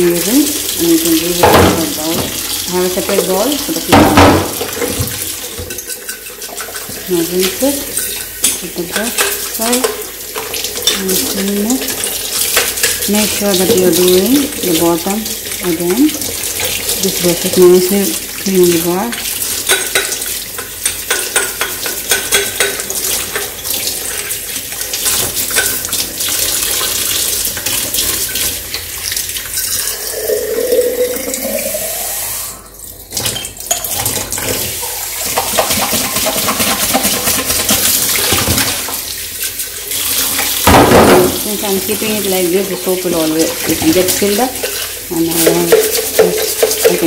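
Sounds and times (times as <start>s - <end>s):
tap water running into sink: 0.0s - 47.0s
bottle filling with rising note: 29.7s - 32.7s.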